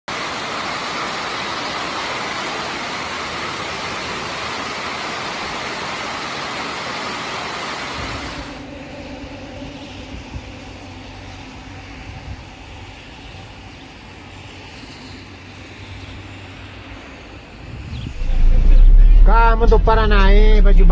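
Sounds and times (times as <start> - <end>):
low rumble: 17.6 - 20.9.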